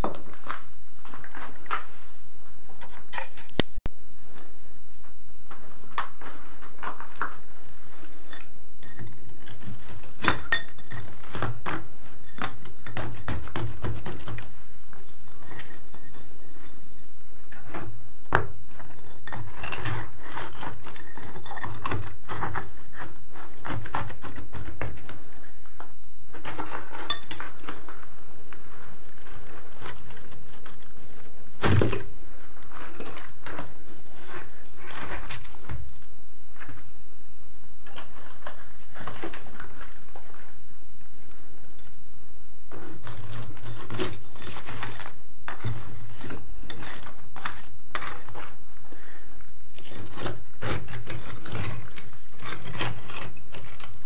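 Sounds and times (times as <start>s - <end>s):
rubble scraping: 5.1s - 36.9s, 42.6s - 48.8s, 49.7s - 54.0s
concrete chunks knocking together: 49.8s - 54.0s.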